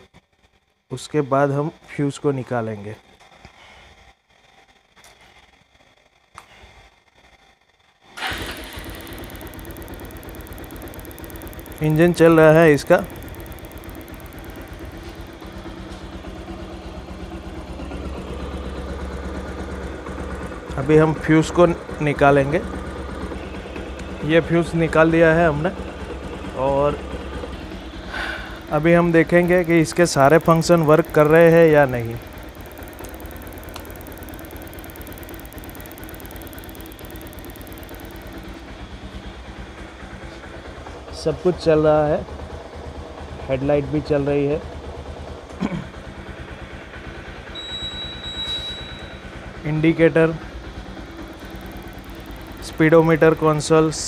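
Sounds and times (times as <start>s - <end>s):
fast fine ticking: 8.2s - 40.2s, 50.2s - 54.0s
motorcycle engine idling: 8.2s - 54.0s.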